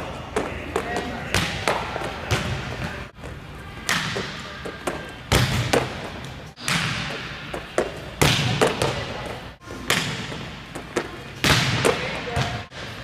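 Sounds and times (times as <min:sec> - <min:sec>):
volleyballs smacking gym floor: 0:03.8 - 0:13.0.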